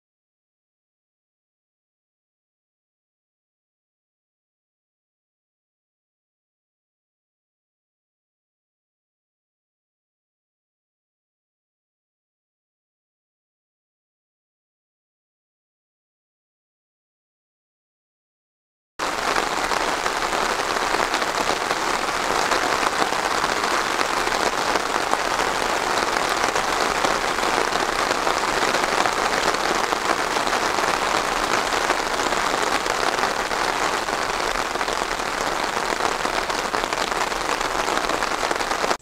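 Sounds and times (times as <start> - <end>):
steady rain falling: 19.0 - 39.0.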